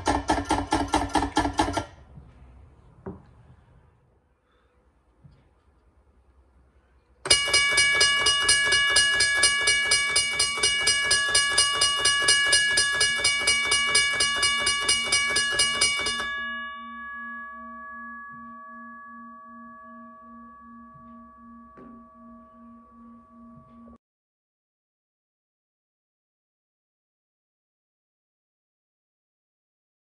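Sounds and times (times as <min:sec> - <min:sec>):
railway crossing bell ringing: 0:07.3 - 0:24.0.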